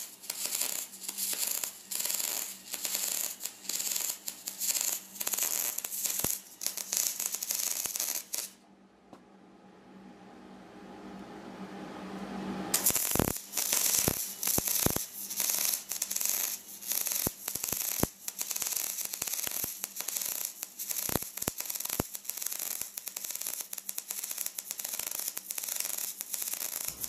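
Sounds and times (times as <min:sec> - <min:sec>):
welding arc crackling and popping: 0:00.0 - 0:08.6, 0:12.8 - 0:27.0
low hum: 0:08.6 - 0:12.8.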